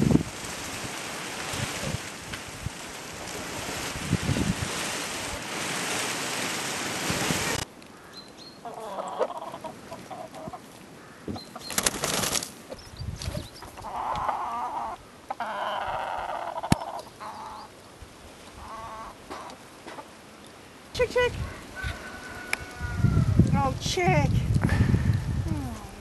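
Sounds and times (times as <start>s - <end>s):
rustling: 0.0s - 8.1s, 9.6s - 13.8s
wind and rain on microphone: 0.0s - 8.7s, 9.3s - 26.0s
chickens clucking: 8.6s - 17.7s, 18.5s - 20.2s.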